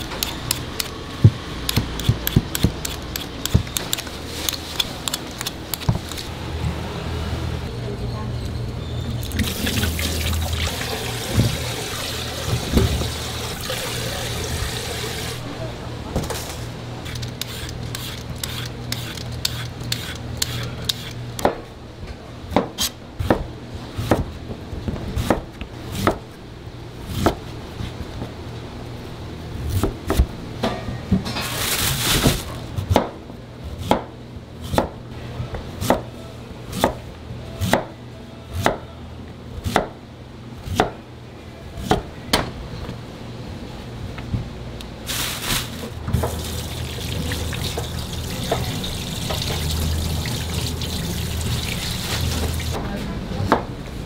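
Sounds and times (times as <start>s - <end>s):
knife chopping on cutting board: 34.7s - 35.0s, 39.6s - 40.0s, 40.7s - 41.0s.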